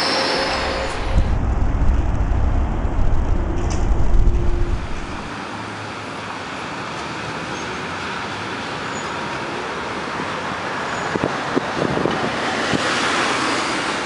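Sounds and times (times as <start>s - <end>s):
tram running past: 0.0s - 6.8s
traffic tyres and engines: 0.0s - 14.0s
vehicle passing: 0.5s - 5.3s
sharp clicks and knocks: 0.8s - 5.3s.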